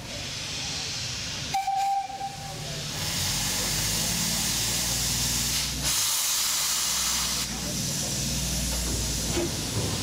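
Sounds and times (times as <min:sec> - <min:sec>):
steam locomotive hissing: 0:00.0 - 0:10.0
steam whistle: 0:01.5 - 0:02.4.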